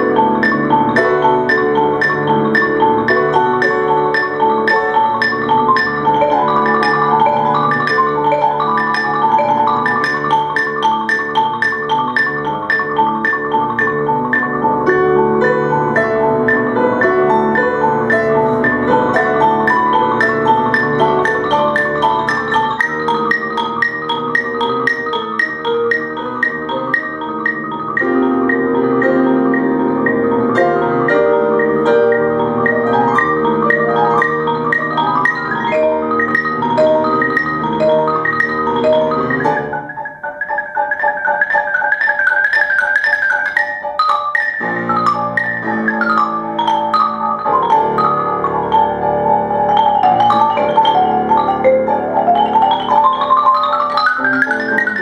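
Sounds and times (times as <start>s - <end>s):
grand piano playing: 0.0s - 55.0s
marimba rapid runs: 0.0s - 55.0s.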